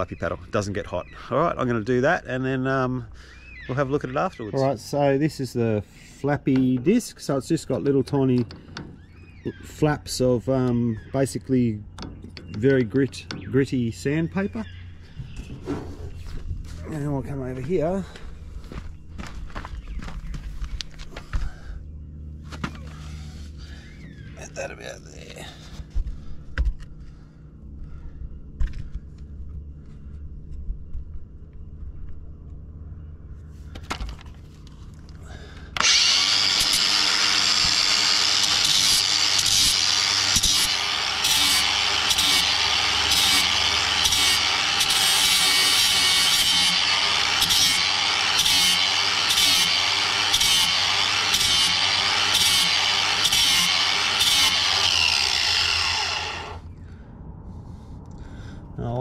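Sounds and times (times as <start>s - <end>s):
angle grinder grinding steel: 35.8s - 56.6s.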